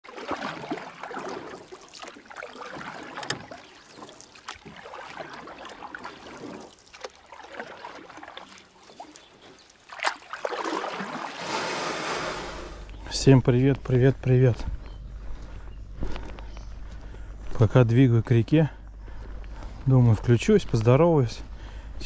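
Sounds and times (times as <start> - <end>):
sharp water swish: 0.0 - 12.9
small water splashes: 0.0 - 13.0
water trickling and gurgling: 0.0 - 13.0.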